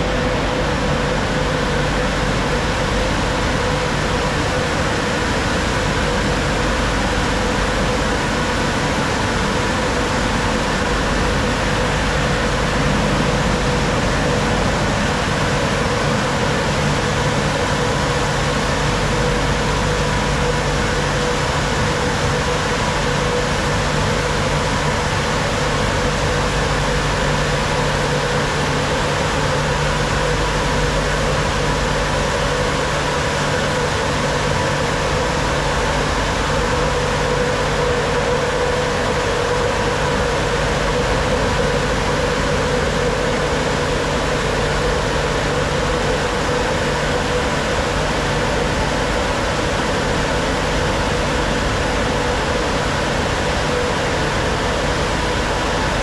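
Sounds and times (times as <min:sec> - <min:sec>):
car wash machinery rushing: 0:00.0 - 0:56.0.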